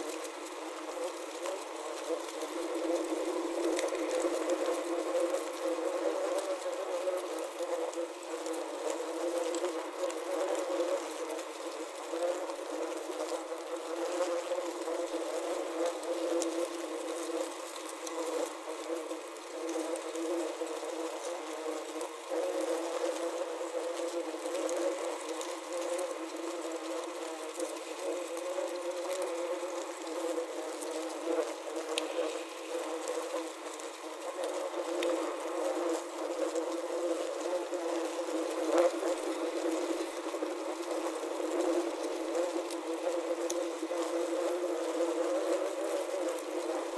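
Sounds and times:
faint ticks: 0.0 - 46.9
wasps buzzing: 0.0 - 46.9.

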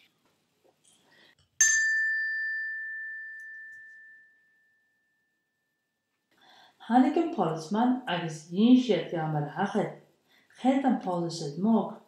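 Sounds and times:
small bell ringing: 1.6 - 5.8.

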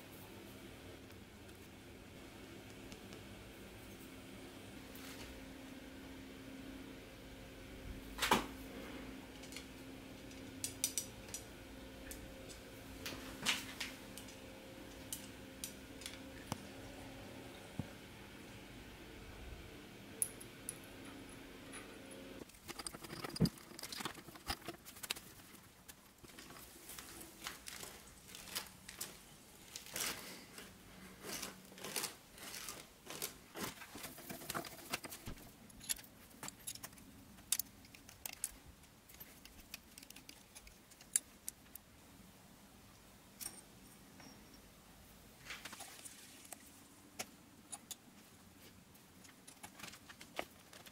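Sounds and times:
faint steady hum: 0.0 - 50.9
metal parts clinking and scraping: 22.4 - 25.2, 34.1 - 41.7.

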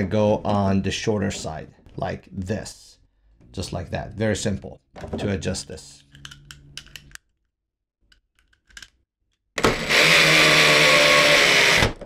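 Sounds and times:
electric drill running: 9.6 - 12.0.

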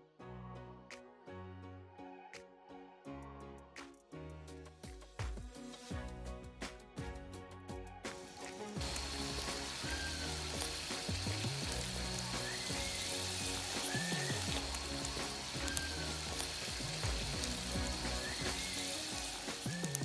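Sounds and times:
background music: 0.0 - 20.0
wood fire crackling and popping: 8.1 - 20.0.

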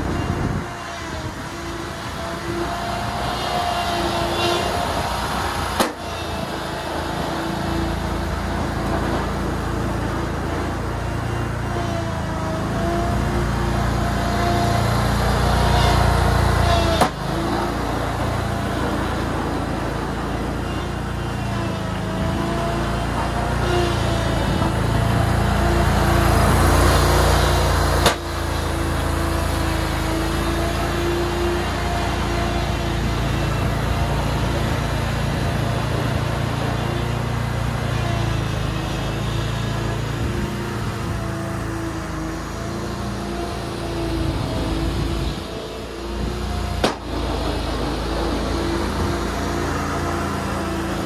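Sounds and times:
mower engine running: 0.0 - 51.0.

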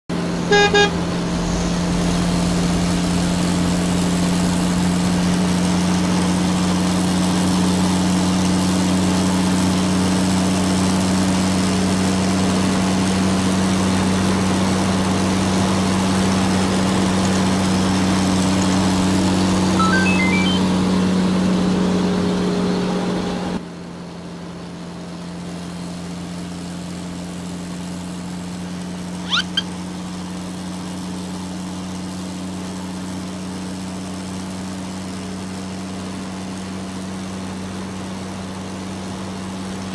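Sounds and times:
noisy rumble: 0.1 - 6.0
truck engine hum: 0.1 - 11.3, 14.0 - 23.6, 29.0 - 30.6
short rising chirp: 19.7 - 20.8, 29.2 - 29.7.

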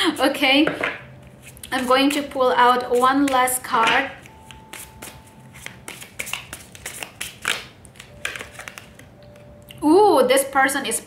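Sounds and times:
cards clicking and rustling: 4.2 - 9.1.

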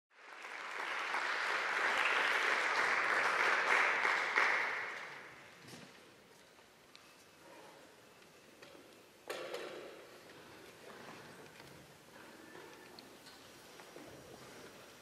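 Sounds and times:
audience applause: 0.1 - 5.4.

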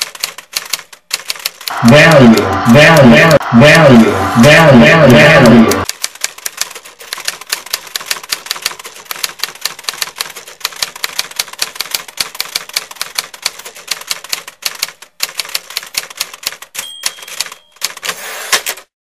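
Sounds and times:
typewriter keys clattering: 0.0 - 1.7, 5.8 - 18.9
typewriter bell ding: 16.7 - 18.2.

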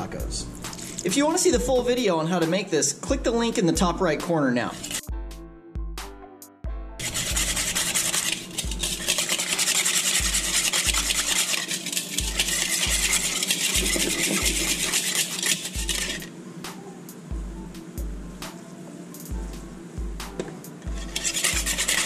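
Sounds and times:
background music bass beat: 0.1 - 2.0, 12.2 - 15.0, 19.2 - 22.0
whisk beating in plastic bowl: 3.5 - 5.0, 7.0 - 16.3, 20.4 - 22.0.

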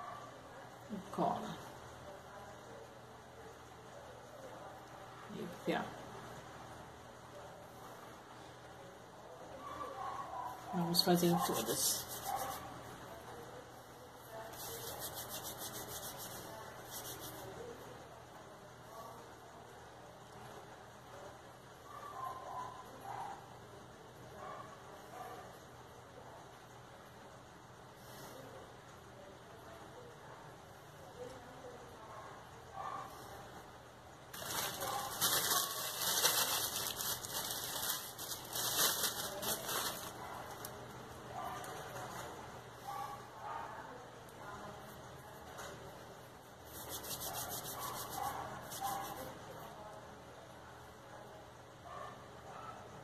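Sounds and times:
palms rubbing together: 11.7 - 12.7, 14.5 - 17.5, 46.7 - 49.2
plastic bag crinkling: 34.3 - 40.3.

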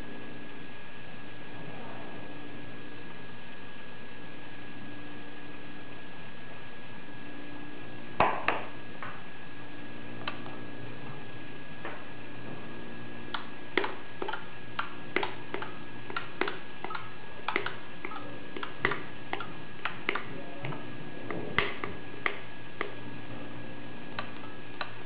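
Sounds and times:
steady background hum: 0.0 - 25.0
remote button and relay clicks: 13.3 - 20.3.

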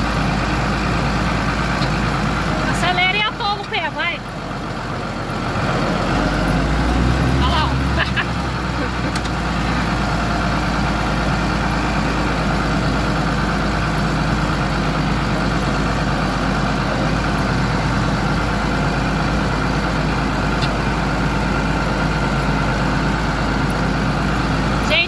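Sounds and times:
tractor diesel engine running: 0.0 - 25.0.

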